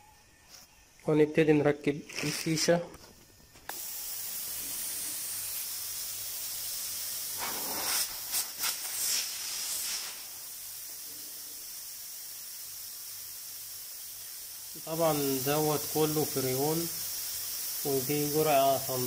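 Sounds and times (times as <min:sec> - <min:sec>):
refrigerant gas hissing from tube: 0:02.1 - 0:19.0.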